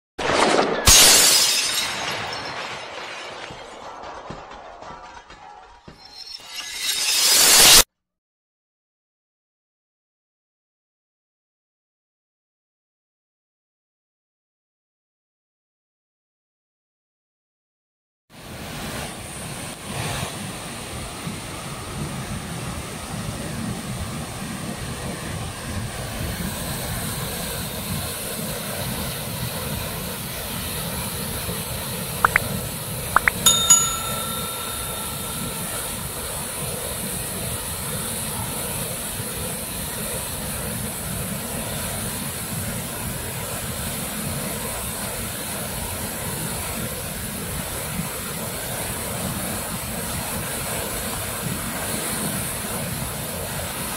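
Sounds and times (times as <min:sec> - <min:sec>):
short ringing chime: 0:33.2 - 0:36.4.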